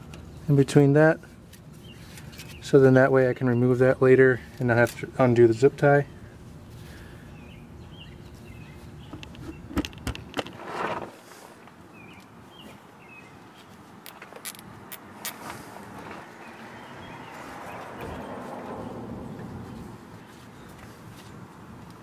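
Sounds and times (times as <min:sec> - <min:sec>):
zip tie clicks: 0:14.0 - 0:15.6.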